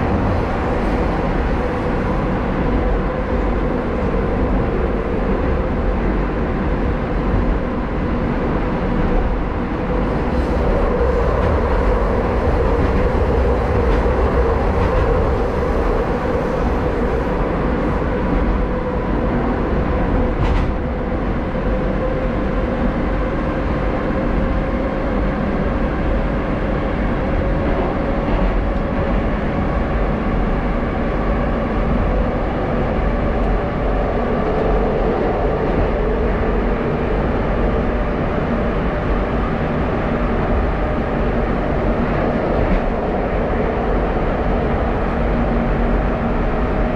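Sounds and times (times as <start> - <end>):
wheels rumbling on rails: 0.0 - 46.9.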